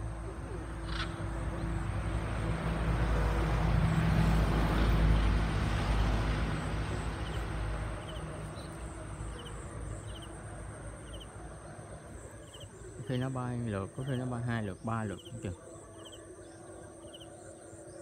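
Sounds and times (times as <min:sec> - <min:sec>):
vehicle passing: 0:00.0 - 0:16.2
faint high chirping: 0:08.0 - 0:18.0.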